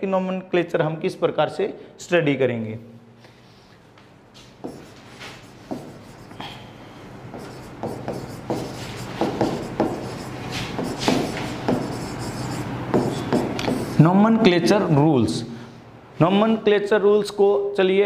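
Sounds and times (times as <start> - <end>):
low steady hum: 2.9 - 16.7
stylus scratching on screen: 4.7 - 6.4, 7.3 - 14.0.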